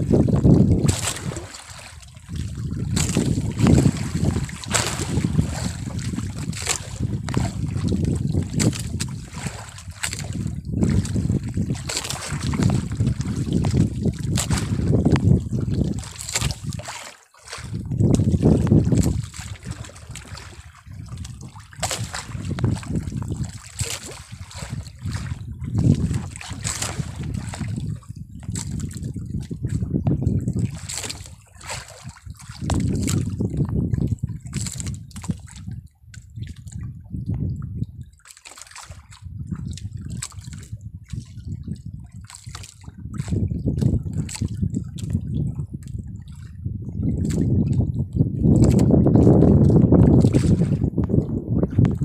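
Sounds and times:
sea water splashing against hull: 0.0s - 52.0s.

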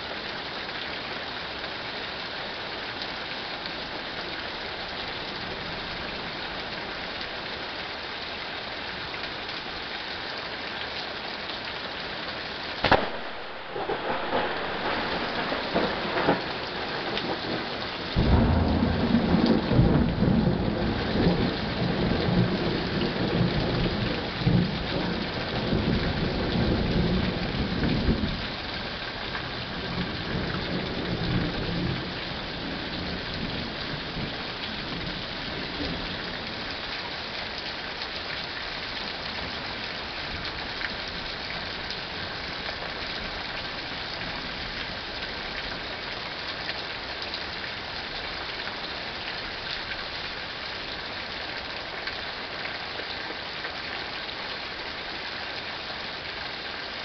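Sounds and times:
steady rain: 0.0s - 57.0s
low rumble of thunder: 12.8s - 28.5s.

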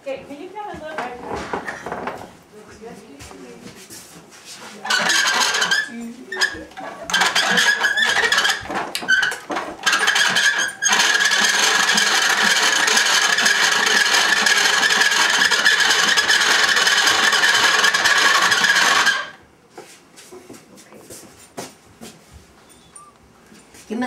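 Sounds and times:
pasta machine squeaking: 4.8s - 19.4s.

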